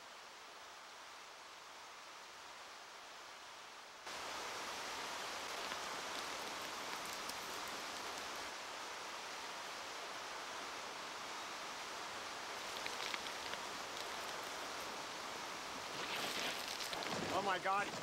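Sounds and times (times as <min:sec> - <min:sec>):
falling water rushing: 0:04.0 - 0:18.0
faint ticks: 0:05.4 - 0:08.5, 0:12.6 - 0:14.9.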